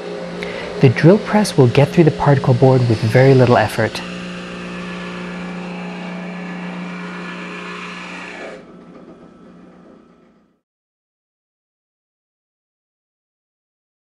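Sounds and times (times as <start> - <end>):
drill bit cutting board: 0.0 - 10.5
drill press motor hum: 0.0 - 10.6.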